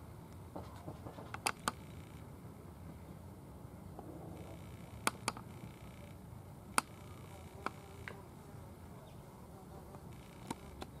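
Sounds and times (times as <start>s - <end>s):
sharp clicks: 1.3s - 2.0s, 4.6s - 6.2s, 10.1s - 11.0s.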